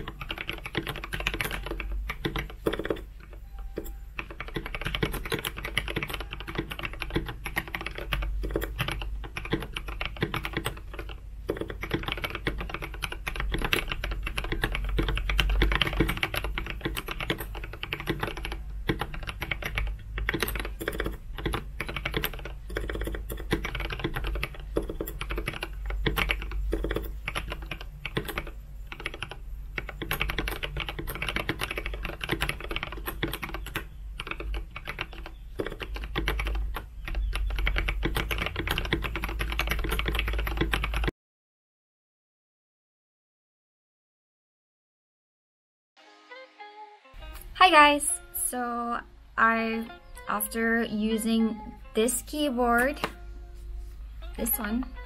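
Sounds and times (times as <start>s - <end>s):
mechanical keyboard typing: 0.0s - 41.1s.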